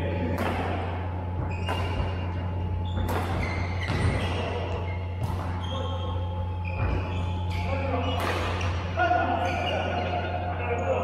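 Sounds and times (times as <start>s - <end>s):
low hum: 0.0s - 11.0s
rackets smacking shuttlecocks: 0.2s - 5.9s, 6.7s - 9.0s.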